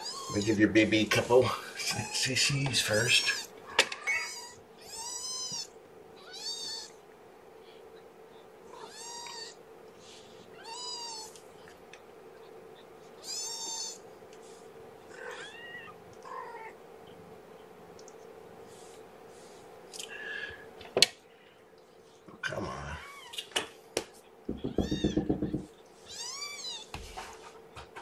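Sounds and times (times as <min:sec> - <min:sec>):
kittens mewing: 0:03.1 - 0:07.0, 0:08.7 - 0:09.6, 0:10.5 - 0:11.4, 0:12.8 - 0:14.1, 0:15.1 - 0:16.8, 0:24.5 - 0:26.9.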